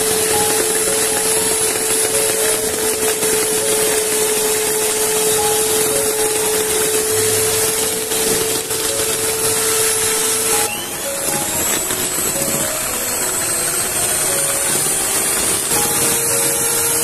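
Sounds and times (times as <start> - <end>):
small electric motor whirring: 0.0 - 17.0.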